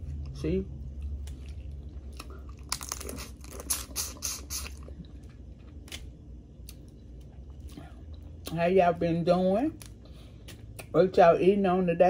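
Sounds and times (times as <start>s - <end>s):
chewing: 0.0s - 8.6s
crawfish shells cracking: 1.1s - 3.8s.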